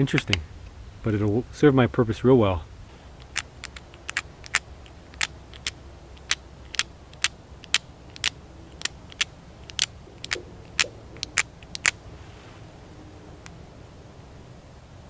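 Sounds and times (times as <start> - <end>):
stone scraping bone: 3.2 - 12.0.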